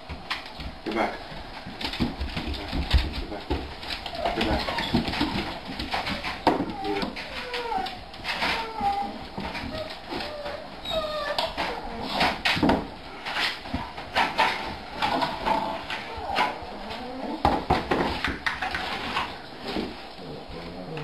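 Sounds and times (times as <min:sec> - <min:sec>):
animals whining and crying: 0:04.0 - 0:12.5, 0:15.0 - 0:17.7.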